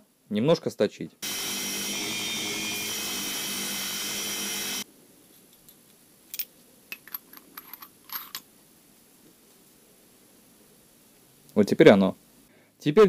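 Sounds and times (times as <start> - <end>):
belt grinder grinding metal: 1.2 - 4.8.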